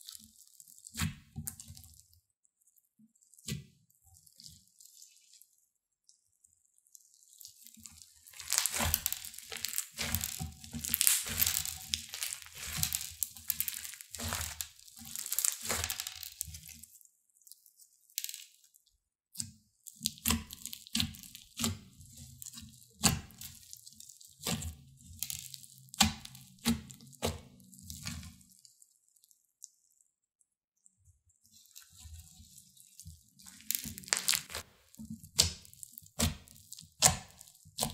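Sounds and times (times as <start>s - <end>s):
crunchy slime crackling pops: 7.9s - 16.8s, 24.4s - 28.4s, 33.4s - 37.9s
squishy slime thuds: 8.2s - 16.6s, 33.4s - 37.9s.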